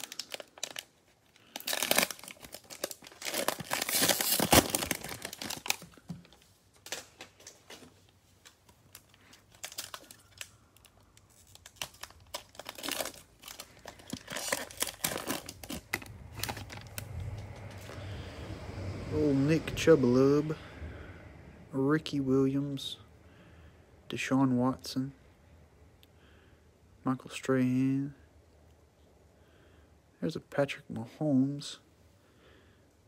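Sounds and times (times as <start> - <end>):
plastic wrapper tearing and crinkling: 0.0 - 18.0.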